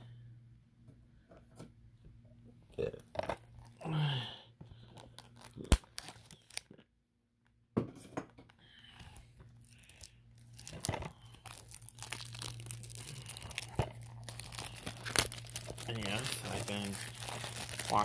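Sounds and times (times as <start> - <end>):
plastic wrap tearing and crinkling: 4.8 - 6.8, 9.6 - 18.0.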